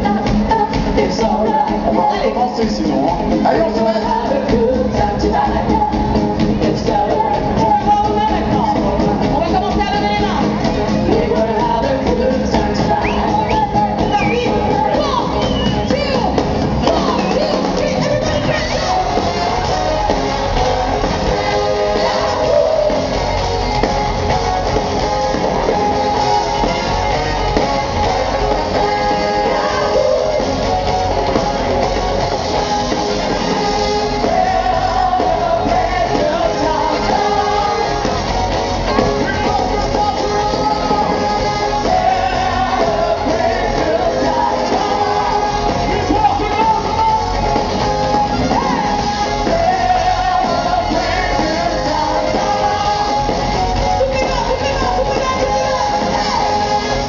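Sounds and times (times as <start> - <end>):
bass: 0.0 - 57.0
drums: 0.0 - 57.0
electric guitar: 0.0 - 57.0
voices singing: 0.0 - 57.0
horn section: 7.1 - 57.0.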